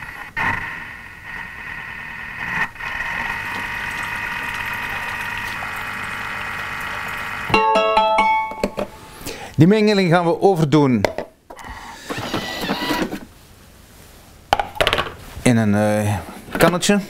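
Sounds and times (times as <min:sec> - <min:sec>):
kitchen mixer motor whine: 0:00.6 - 0:07.5.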